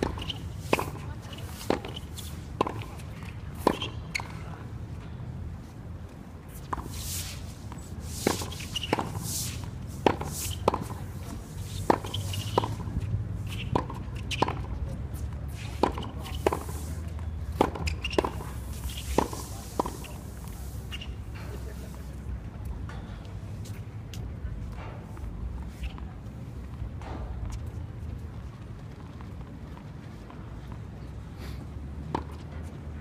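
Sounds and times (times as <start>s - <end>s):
tennis ball hit by racquets: 0.0s - 4.4s, 6.5s - 16.9s, 17.5s - 21.2s.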